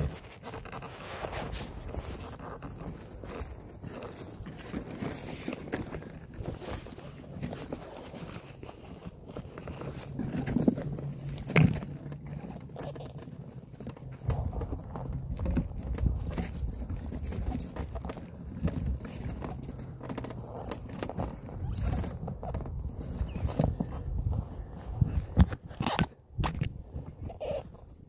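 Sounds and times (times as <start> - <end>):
low rumble of travel on dirt: 0.0 - 28.0
scattered clicks and knocks: 10.1 - 23.7.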